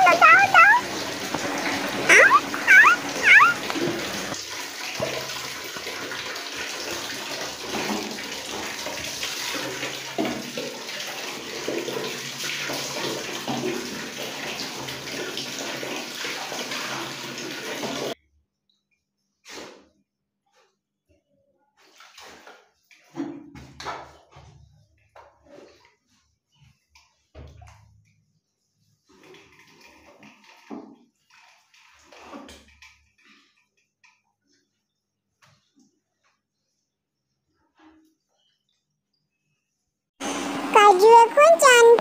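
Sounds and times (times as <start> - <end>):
puppy whining: 0.0 - 0.8, 2.1 - 3.9
water splashing on tiled floor: 0.0 - 18.2, 21.8 - 23.2.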